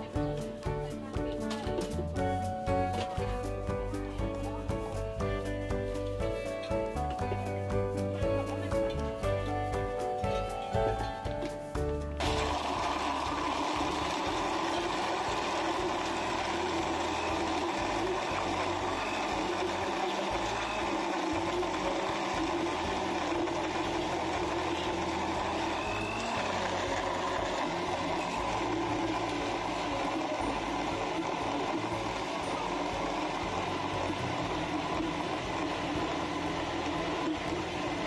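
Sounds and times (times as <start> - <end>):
blender crushing ice: 12.2 - 38.0.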